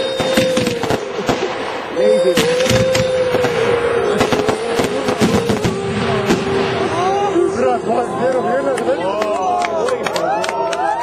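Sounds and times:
firework shells bursting: 0:00.0 - 0:07.1
firework rocket going up: 0:00.0 - 0:08.1.

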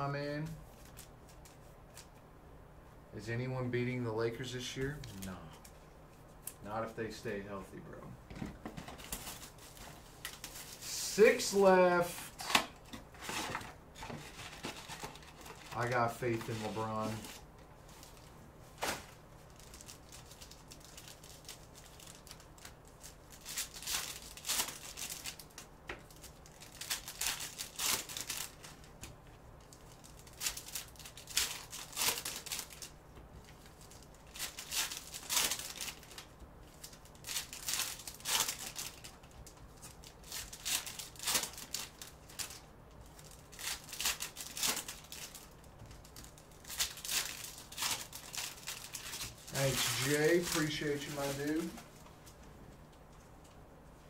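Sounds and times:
cards being handled: 0:12.3 - 0:52.4
foil wrapper crinkling and tearing: 0:18.9 - 0:51.8.

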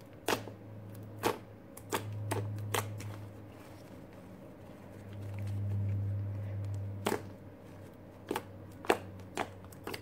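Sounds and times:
low steady hum: 0:00.0 - 0:10.0
slime squishing: 0:00.0 - 0:10.0.

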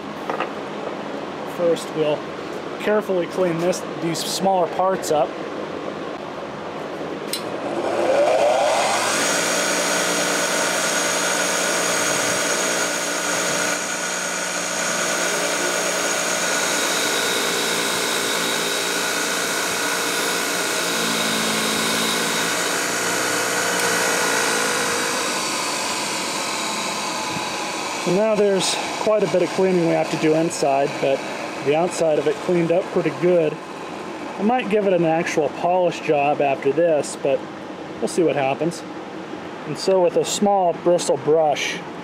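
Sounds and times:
bench grinder motor running: 0:07.6 - 0:33.2.

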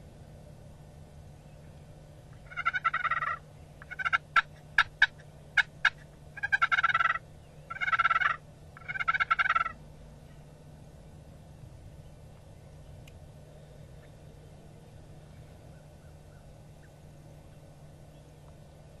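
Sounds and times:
turkey gobbling: 0:02.4 - 0:09.8.

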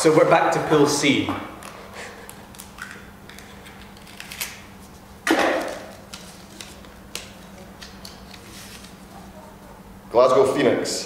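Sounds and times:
faint steady hum: 0:00.0 - 0:11.0
paper rustling: 0:03.7 - 0:09.2.

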